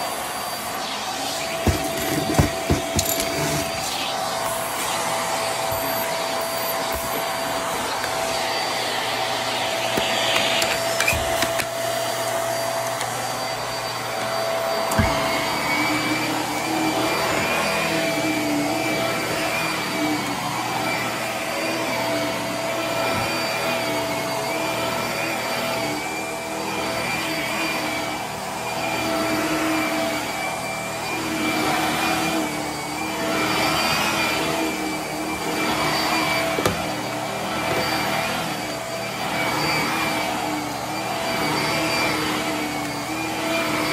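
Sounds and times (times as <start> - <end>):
wavering whine: 0.0 - 31.8
vacuum cleaner whine: 0.0 - 43.9.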